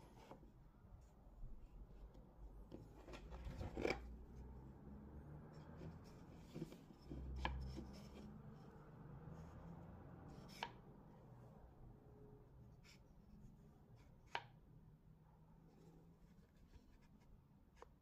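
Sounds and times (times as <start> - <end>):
wooden parts handled by hand: 2.0 - 4.4, 5.5 - 8.4.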